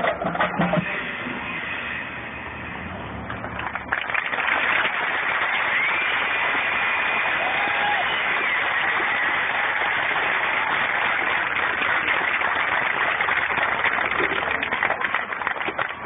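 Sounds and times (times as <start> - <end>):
crowd applauding: 3.3 - 16.0.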